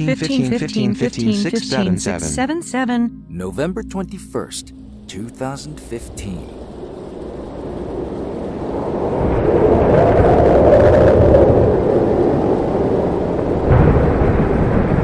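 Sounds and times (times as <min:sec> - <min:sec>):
thunder rolling: 0:06.5 - 0:15.0.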